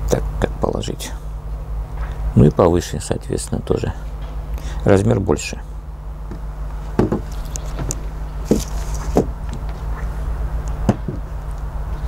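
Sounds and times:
steady low hum: 0.0s - 12.0s
objects knocking on wooden table: 7.0s - 7.3s.

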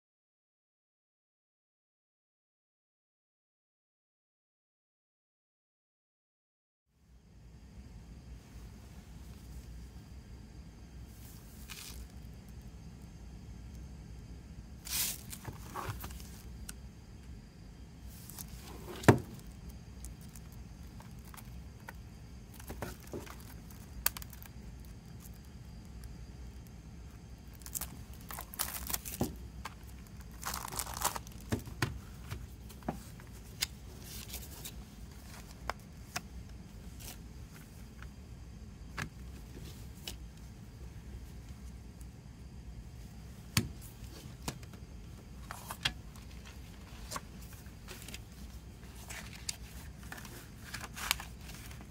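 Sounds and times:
cellophane crinkling: 27.4s - 32.8s.

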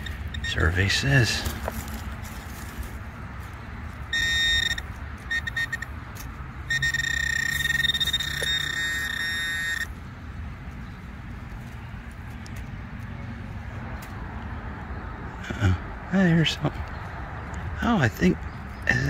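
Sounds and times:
metal detector buzzing tone: 0.0s - 0.8s, 4.1s - 6.0s, 6.6s - 10.0s.

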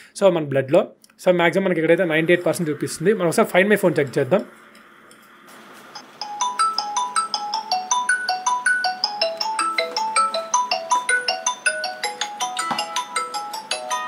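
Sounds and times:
phone ringtone melody: 6.2s - 14.0s.

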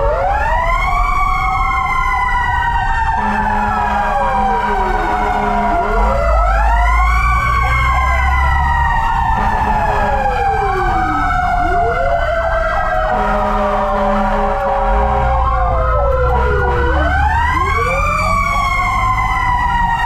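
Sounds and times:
fire engine sirens wailing: 0.0s - 20.0s
truck low rumble: 0.0s - 20.0s.

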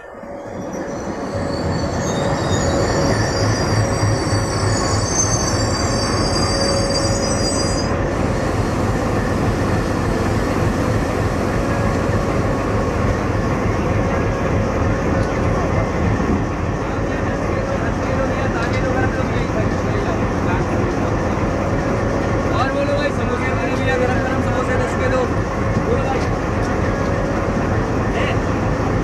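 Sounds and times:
high-pitched multi-tone squeal: 0.0s - 13.9s
diesel locomotive engine passing: 0.0s - 29.0s
train coaches rumbling over rails: 0.0s - 29.0s.

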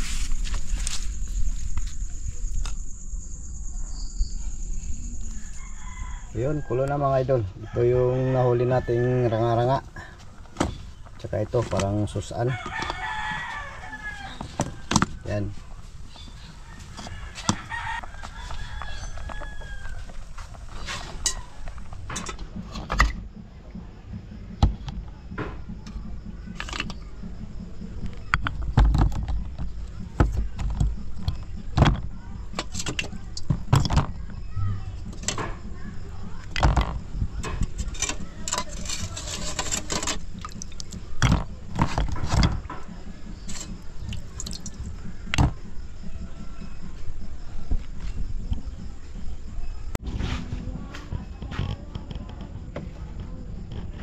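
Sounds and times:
rooster crowing: 5.2s - 9.8s, 12.3s - 15.4s, 16.4s - 21.8s
water dripping and splashing: 40.2s - 41.1s, 44.0s - 45.0s.

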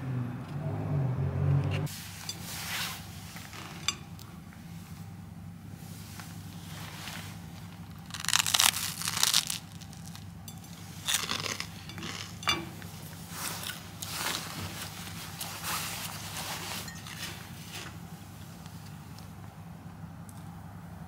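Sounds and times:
toast crunching: 7.7s - 14.4s.

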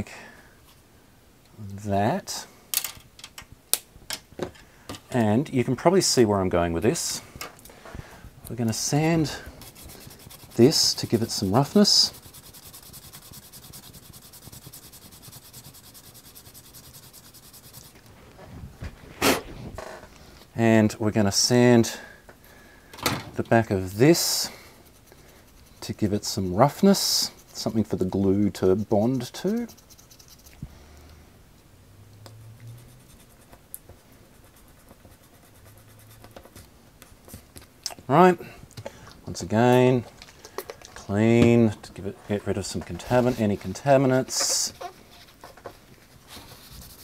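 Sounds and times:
sandpaper rubbing on plastic: 8.7s - 18.0s, 24.0s - 30.5s, 46.1s - 47.0s.

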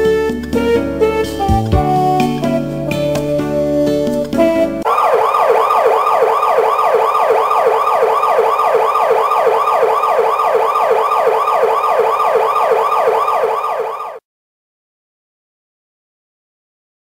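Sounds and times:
siren-like wail: 4.8s - 14.2s.

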